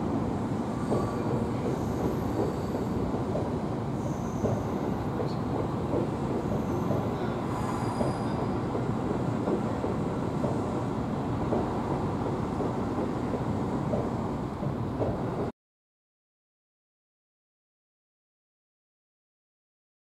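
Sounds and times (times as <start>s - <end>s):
train wheels rumbling on rails: 0.0s - 15.5s
high-pitched wheel squeals: 7.5s - 8.6s.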